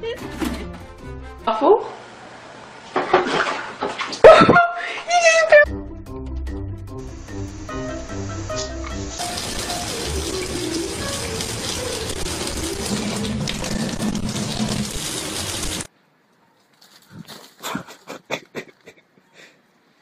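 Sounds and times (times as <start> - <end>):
music: 0.0 - 1.6, 5.6 - 15.9.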